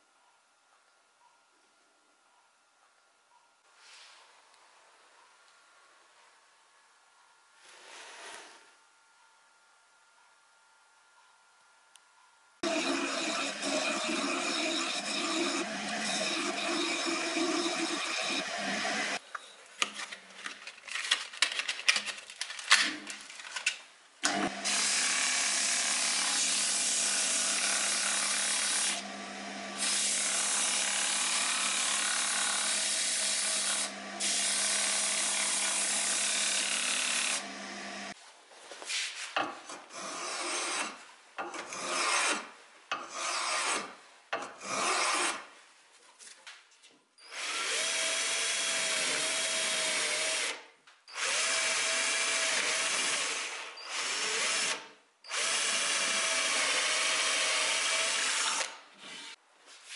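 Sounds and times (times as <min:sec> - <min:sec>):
wood lathe motor hum: 0:12.6 - 0:19.2, 0:24.3 - 0:38.2
short rubbing sounds: 0:38.8 - 0:39.4.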